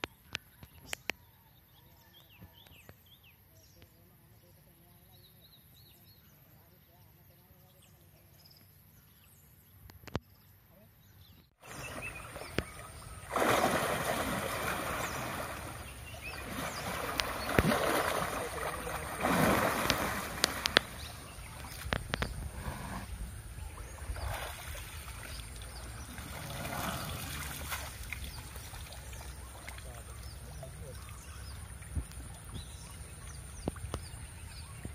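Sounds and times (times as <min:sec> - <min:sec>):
elephant splashing in water: 0:11.6 - 0:29.9.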